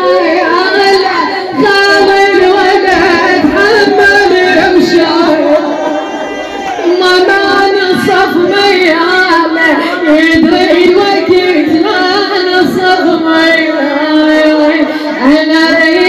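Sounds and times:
woman singing a lament: 0:00.0 - 0:16.0.

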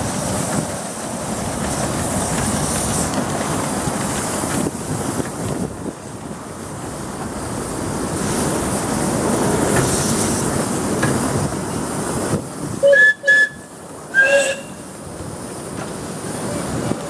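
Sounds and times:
miniature steam locomotives running: 0:00.0 - 0:17.0
steam whistle toots: 0:12.8 - 0:14.8.

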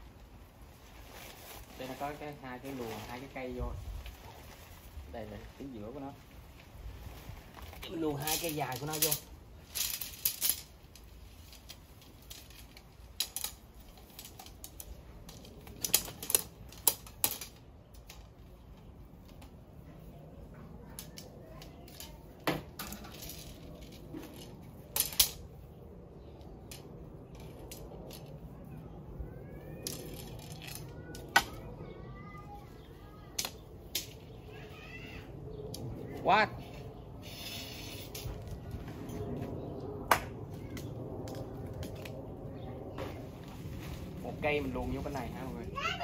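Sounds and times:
tent pole sections clicking: 0:06.5 - 0:19.8, 0:20.7 - 0:25.6, 0:26.3 - 0:28.5, 0:29.4 - 0:31.8, 0:33.3 - 0:34.5.

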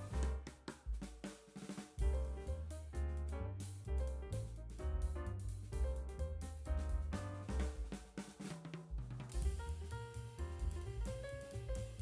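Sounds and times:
background music with drum kit: 0:00.0 - 0:12.0.

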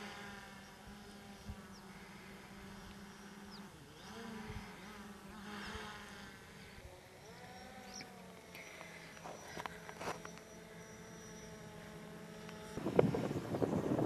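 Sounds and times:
insects buzzing: 0:00.0 - 0:14.0
faint high chirps: 0:07.2 - 0:11.9.

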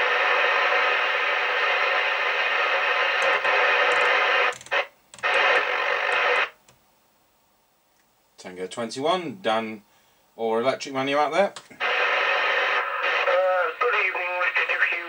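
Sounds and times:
radio speaker static hiss: 0:00.0 - 0:06.7, 0:10.6 - 0:15.0.

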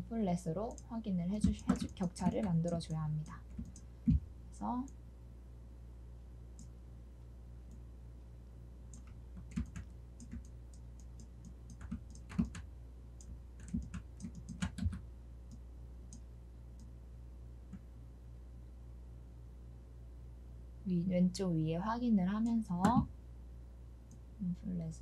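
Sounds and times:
low electrical hum: 0:00.0 - 0:25.0
keyboard and mouse clicks: 0:00.7 - 0:04.2, 0:08.9 - 0:16.2, 0:22.4 - 0:23.1.

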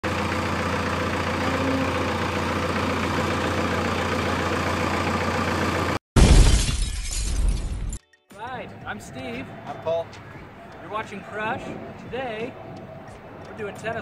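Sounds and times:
road roller diesel engine running: 0:00.0 - 0:06.0
loud sudden crash: 0:06.2 - 0:08.0.

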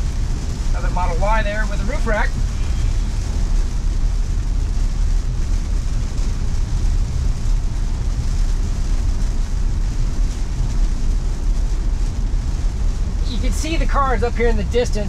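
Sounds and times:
low road rumble: 0:00.0 - 0:15.0
tyres hissing on wet road: 0:00.0 - 0:15.0.

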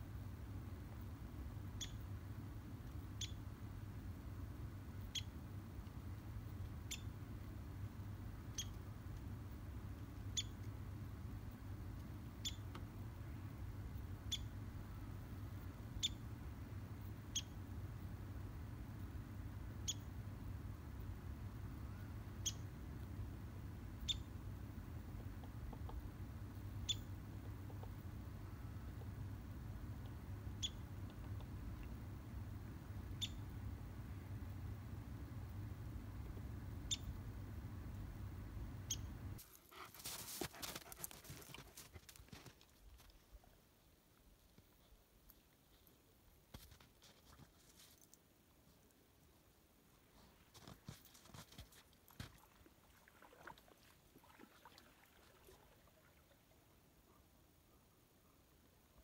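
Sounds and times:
steady low rumble: 0:00.0 - 0:39.4.

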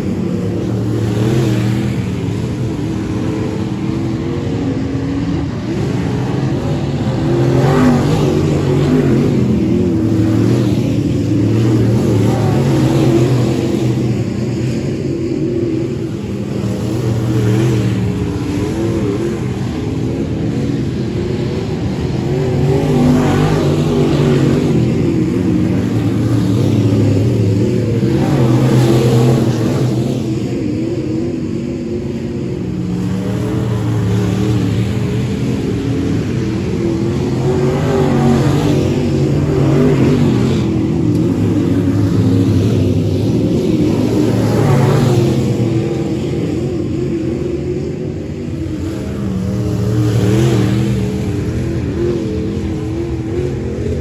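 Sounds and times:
race car engines roaring past: 0:00.0 - 0:54.0.

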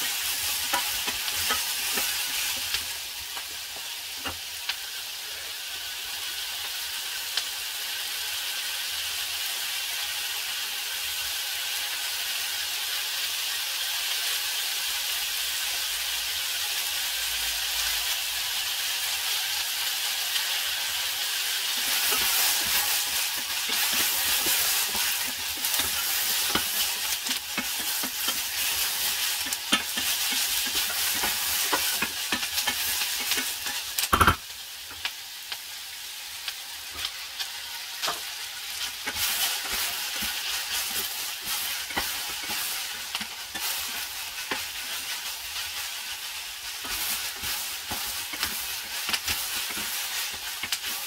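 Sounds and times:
peppers sizzling in a pan: 0:00.0 - 0:51.0
wooden spatula scraping: 0:21.7 - 0:33.8, 0:38.0 - 0:51.0.

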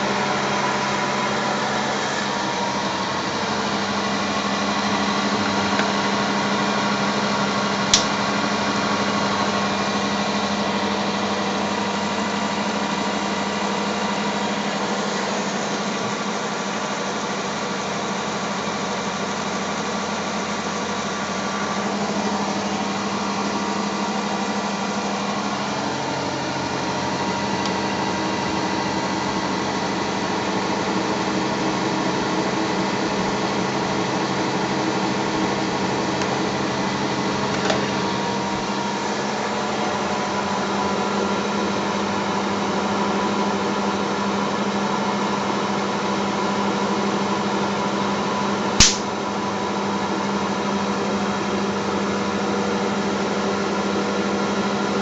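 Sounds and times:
sharp click: 0:48.8 - 0:49.1.

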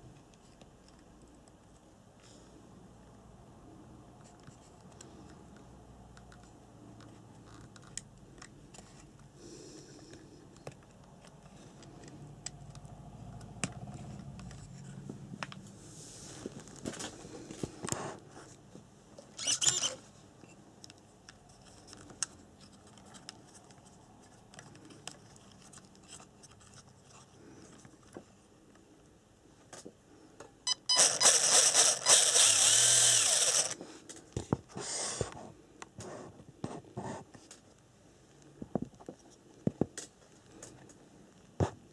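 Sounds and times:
electric motor whirring: 0:30.9 - 0:33.8.

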